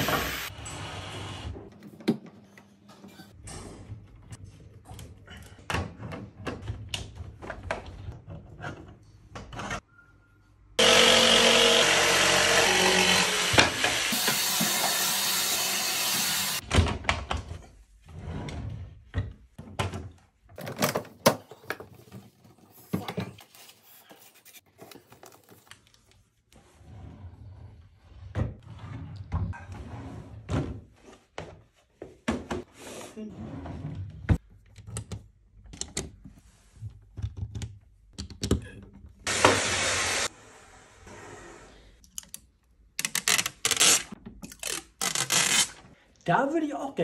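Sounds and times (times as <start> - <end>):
loud electric motor running: 0.0 - 0.5, 10.8 - 16.6.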